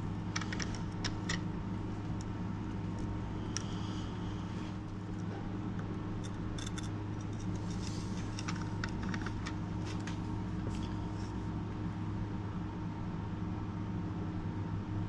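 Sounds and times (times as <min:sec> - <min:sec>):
steady low hum: 0:00.0 - 0:15.0
knife clicking and scraping on metal: 0:06.2 - 0:08.6.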